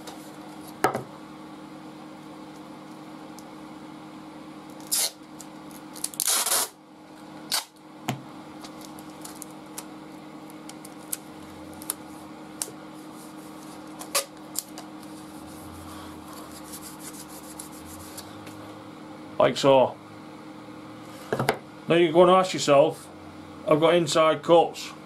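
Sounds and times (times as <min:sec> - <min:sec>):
packing tape ripping off roll: 0:04.8 - 0:06.8, 0:07.5 - 0:07.8, 0:14.0 - 0:14.8
tape clicks and crackles: 0:08.6 - 0:12.0, 0:13.9 - 0:15.2.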